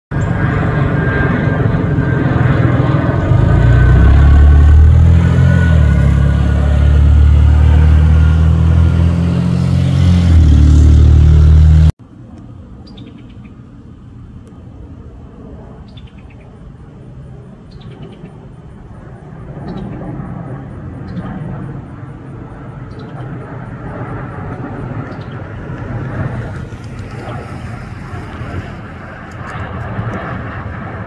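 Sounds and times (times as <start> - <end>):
jet engines rumbling overhead: 0.1 - 31.0
bird chirps: 12.8 - 13.6, 15.8 - 16.5, 17.7 - 18.4.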